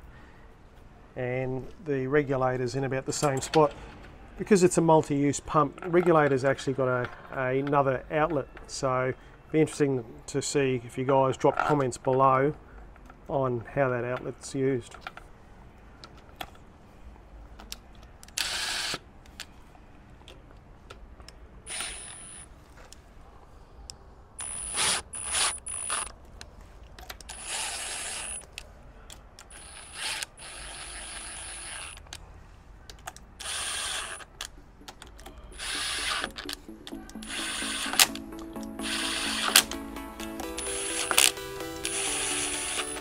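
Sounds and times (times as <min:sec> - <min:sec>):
cordless drill whining: 0:21.7 - 0:22.4, 0:24.4 - 0:26.1, 0:27.3 - 0:28.4, 0:29.5 - 0:32.0, 0:33.4 - 0:34.3, 0:35.6 - 0:38.2, 0:38.8 - 0:39.7, 0:40.6 - 0:43.0.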